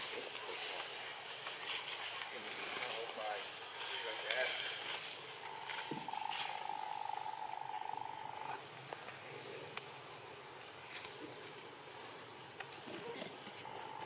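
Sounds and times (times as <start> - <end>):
buzzing insect trill: 3.5 - 8.6, 13.6 - 14.0
bird chirps: 5.4 - 9.0.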